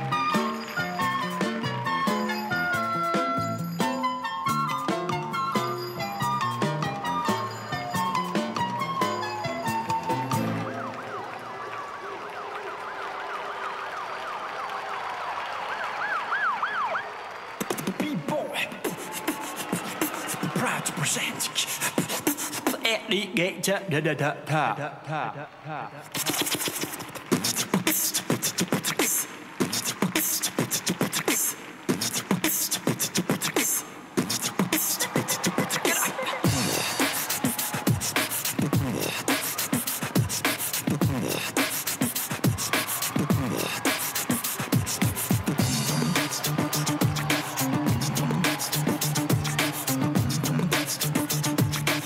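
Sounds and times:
siren-like wailing sound effect: 0:10.4 - 0:17.2
mouth percussion clicks: 0:26.1 - 0:35.0.

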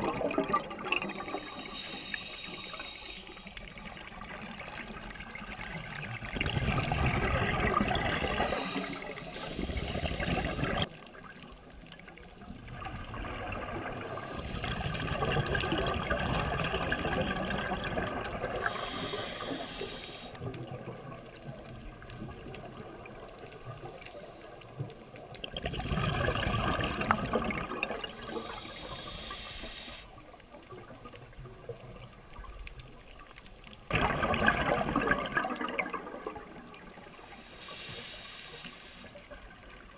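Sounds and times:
exhaled bubbles gurgling underwater: 0:00.0 - 0:39.9
regulator hiss: 0:01.1 - 0:04.1, 0:08.0 - 0:10.9, 0:14.0 - 0:15.3, 0:18.5 - 0:20.4, 0:28.1 - 0:30.2, 0:37.1 - 0:39.2.

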